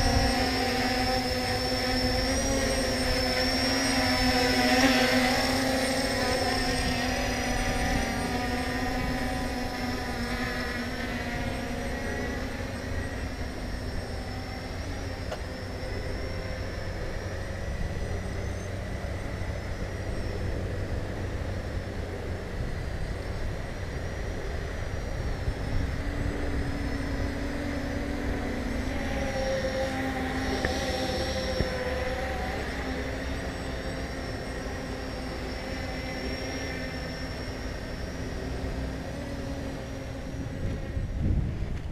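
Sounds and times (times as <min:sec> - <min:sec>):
wind rumble on microphone: 0:00.0 - 0:03.5, 0:06.2 - 0:14.3, 0:16.7 - 0:33.5, 0:39.6 - 0:41.9
drone propellers whining: 0:00.0 - 0:41.9.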